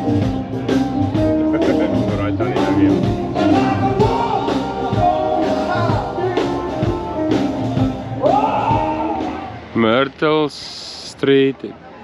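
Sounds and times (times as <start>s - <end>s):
rock band music with singing: 0.0s - 9.6s.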